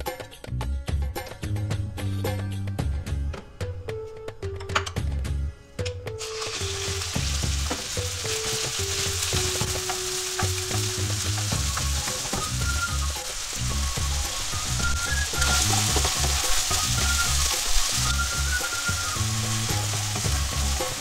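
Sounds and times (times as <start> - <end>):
background music: 0.0 - 21.0
chicken sizzling in hot oil: 6.2 - 21.0.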